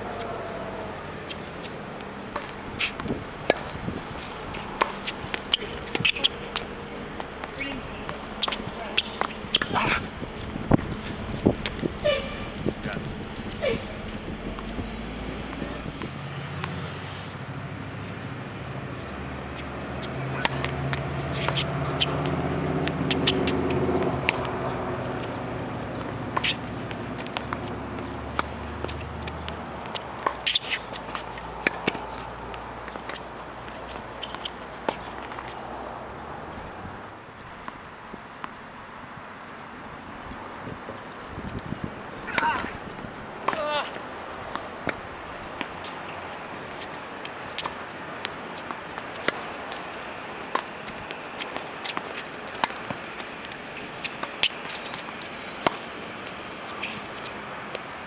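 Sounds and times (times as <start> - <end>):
tennis ball bouncing on court: 2.3 - 3.7, 4.6 - 16.8, 19.5 - 35.6, 40.9 - 57.9
tennis ball hit by rackets: 2.3 - 3.8, 4.5 - 14.8, 20.0 - 35.6, 42.2 - 46.1, 46.7 - 56.0.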